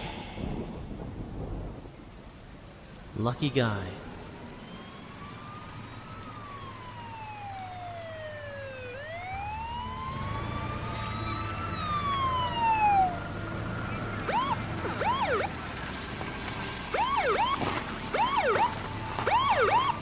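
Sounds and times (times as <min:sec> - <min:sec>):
low rumble: 0:00.0 - 0:02.5
police siren wailing: 0:04.2 - 0:15.9, 0:16.8 - 0:20.0.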